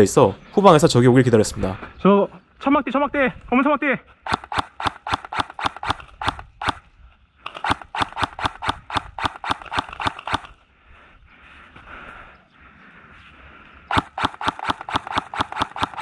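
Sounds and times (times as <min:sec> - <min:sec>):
airsoft gun shots: 0:04.2 - 0:06.8, 0:07.5 - 0:10.5, 0:13.9 - 0:16.0.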